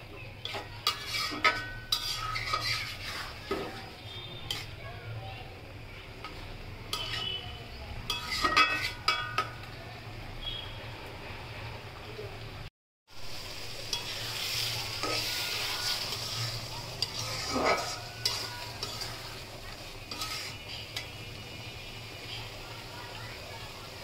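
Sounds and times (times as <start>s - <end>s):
curry sizzling and bubbling: 0.0s - 24.0s
metal spatula scraping pan: 0.4s - 4.9s, 6.2s - 9.6s, 13.8s - 21.2s.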